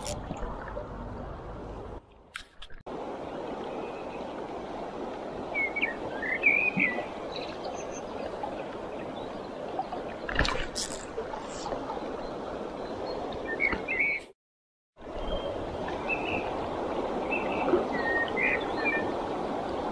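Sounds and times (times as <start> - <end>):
river running over stones: 2.9 - 14.0.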